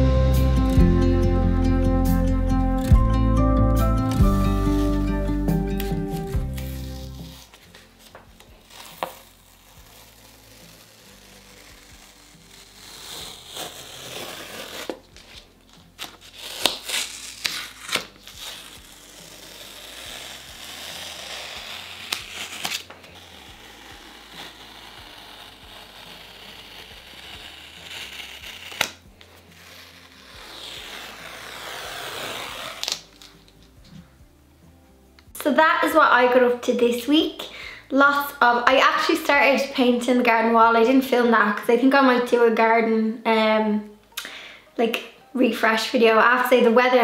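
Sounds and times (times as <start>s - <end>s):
masking tape peeling off paper: 4.0s - 33.8s.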